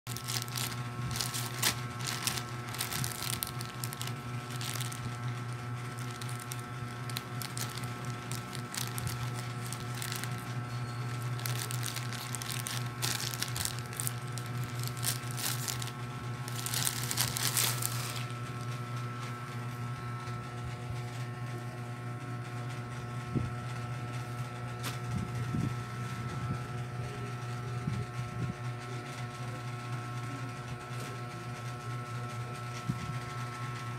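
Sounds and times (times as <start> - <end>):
fabric rustling: 0.1 - 10.5, 11.2 - 18.4
scissors cutting plastic: 0.1 - 10.6, 11.2 - 18.4
plastic bag crinkling: 0.1 - 18.8
steady low hum: 0.1 - 22.4.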